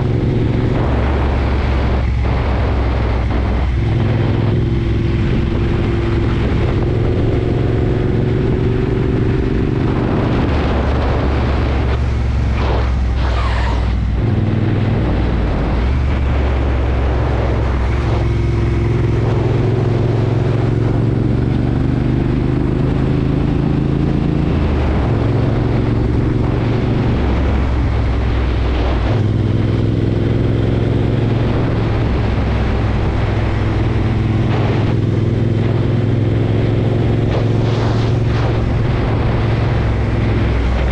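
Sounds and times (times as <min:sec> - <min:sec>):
motorcycle engine running: 0:00.0 - 0:40.9.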